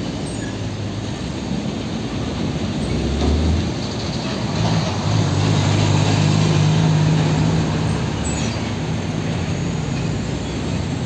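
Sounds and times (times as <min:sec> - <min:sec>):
truck diesel engine driving past: 0:02.8 - 0:11.0.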